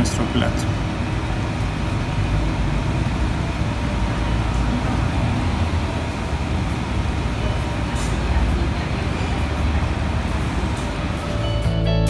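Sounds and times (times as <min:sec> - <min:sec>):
mechanical rumble and hiss: 0:00.0 - 0:12.0.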